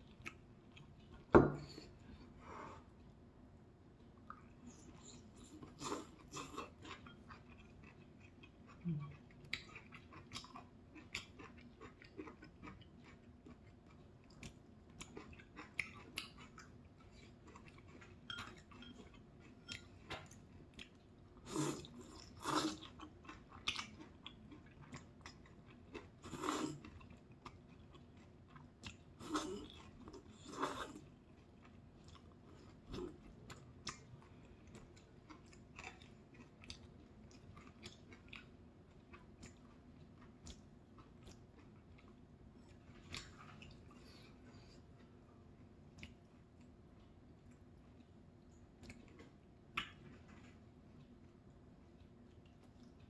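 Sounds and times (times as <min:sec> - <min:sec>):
wet chewing and lip smacking: 0:00.0 - 0:01.3, 0:04.0 - 0:53.0.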